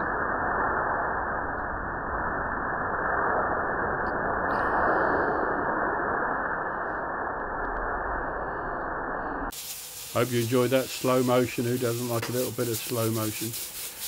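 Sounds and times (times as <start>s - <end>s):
burner flame roaring: 0.0s - 14.0s.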